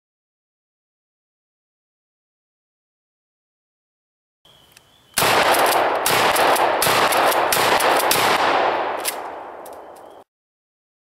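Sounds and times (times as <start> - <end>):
shotgun blast with echo: 5.2 - 9.6.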